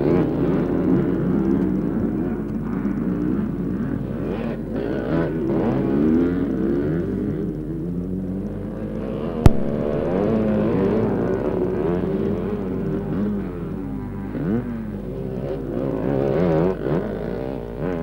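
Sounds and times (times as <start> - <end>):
motorcycle engines revving: 0.0 - 18.0
sharp click: 9.5 - 10.1.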